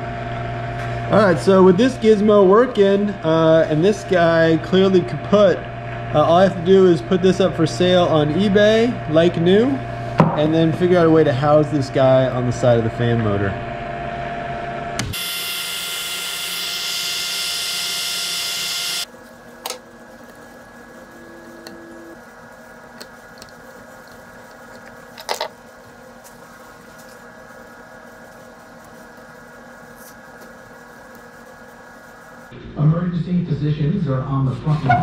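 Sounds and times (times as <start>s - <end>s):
faint steady hum: 0.0s - 34.9s
small motor-driven machine running: 15.0s - 19.1s.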